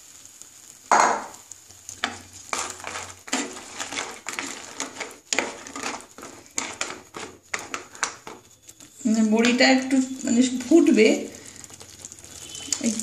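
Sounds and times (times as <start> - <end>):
gravy sizzling: 0.0 - 13.0
wooden spatula scraping a pan: 1.9 - 13.0.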